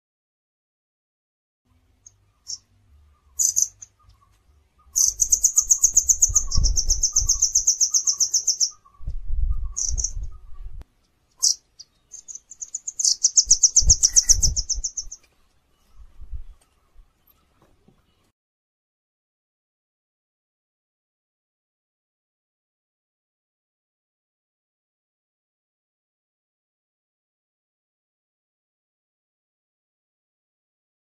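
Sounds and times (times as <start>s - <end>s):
songbird chirps: 1.7s - 18.4s
songbird trilling: 2.0s - 10.6s, 11.4s - 15.3s.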